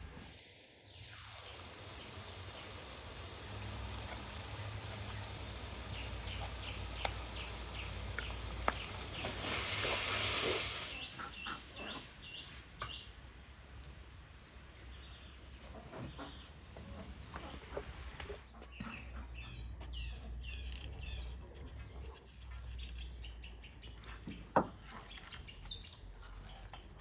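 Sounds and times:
meat frying in metal pan: 0.0 - 11.0
small birds chirping: 0.8 - 13.2, 14.6 - 27.0.

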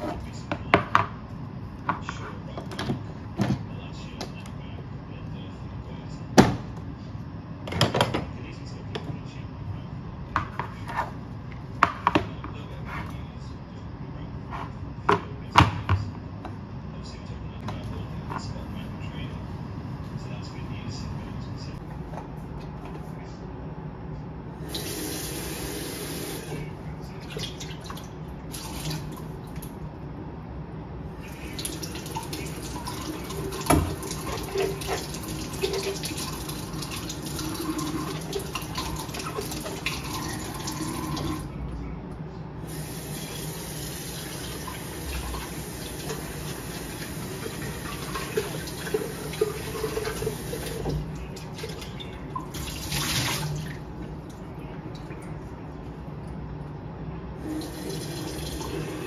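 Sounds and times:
running water: 24.6 - 29.6, 31.2 - 41.5, 42.7 - 53.8, 57.4 - 59.0.

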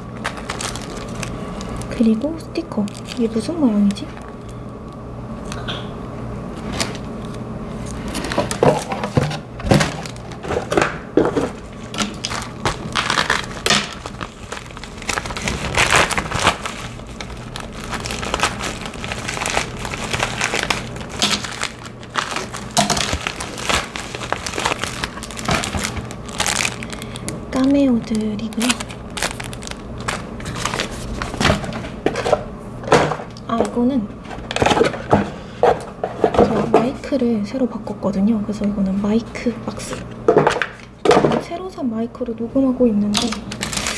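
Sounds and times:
plastic packaging crinkling: 0.0 - 5.6, 6.6 - 32.4, 43.1 - 43.9.

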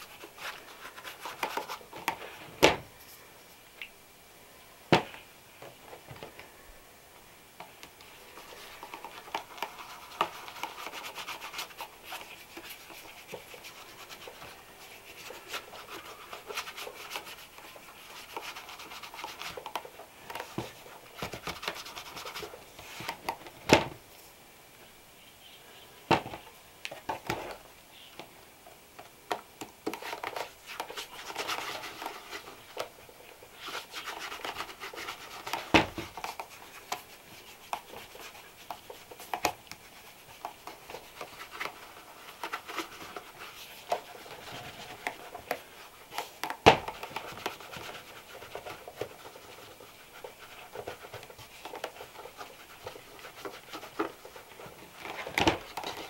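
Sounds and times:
scratchy rubbing on leather: 8.3 - 19.9, 30.6 - 55.0.

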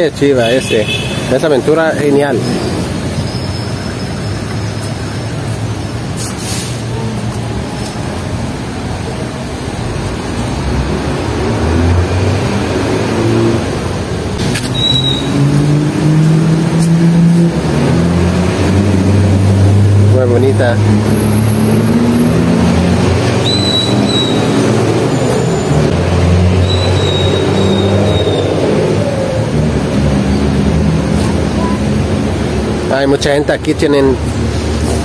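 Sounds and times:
road traffic: 0.0 - 35.0.

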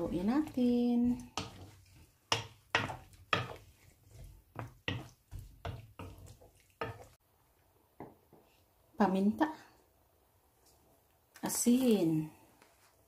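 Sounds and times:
spatula scraping and knocking pan: 0.0 - 7.2.

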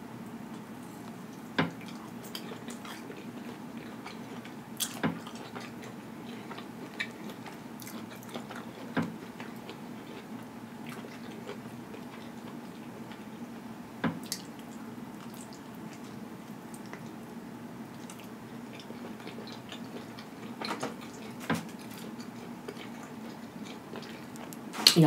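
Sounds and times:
faint steady hum: 0.0 - 25.0
person chewing: 1.8 - 13.2, 17.9 - 25.0.

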